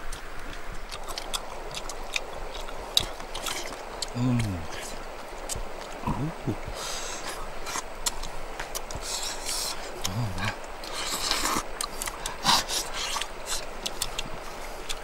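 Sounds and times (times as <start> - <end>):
person humming mm: 4.2 - 4.8, 6.0 - 6.8, 10.0 - 10.6
lip smacks and sucking: 6.9 - 10.2, 10.8 - 15.0.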